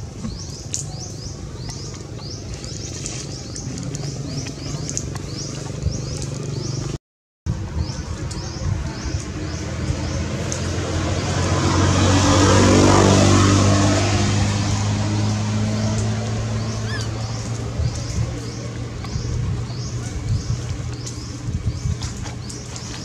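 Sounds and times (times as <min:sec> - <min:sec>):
vehicle engine passing by: 0:00.2 - 0:07.0, 0:07.8 - 0:23.0.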